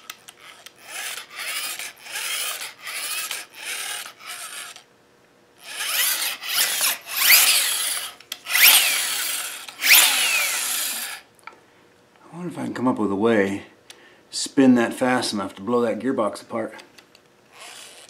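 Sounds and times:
gearbox rubbing and whirring: 0:00.4 - 0:04.8, 0:05.6 - 0:11.2, 0:17.6 - 0:18.0.

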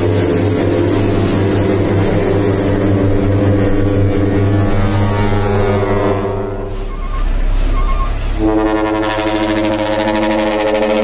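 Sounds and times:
multi-trumpet air horn blast: 0:08.4 - 0:11.0.

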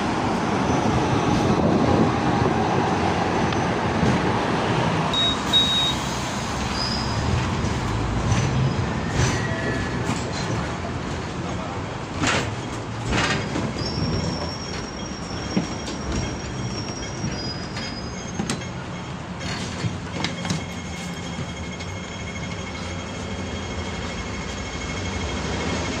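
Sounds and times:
tram wheels rumbling on rails: 0:00.0 - 0:26.0
high thin wheel squeal: 0:05.2 - 0:07.2, 0:13.7 - 0:25.9
knocks and rattles: 0:12.1 - 0:18.7.

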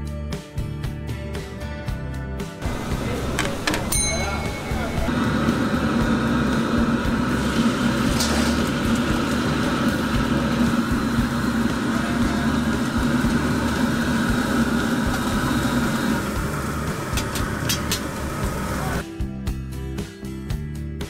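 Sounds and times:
gas burner flame roaring: 0:02.6 - 0:19.0
low hum: 0:02.6 - 0:19.0
water boiling: 0:02.6 - 0:19.0.

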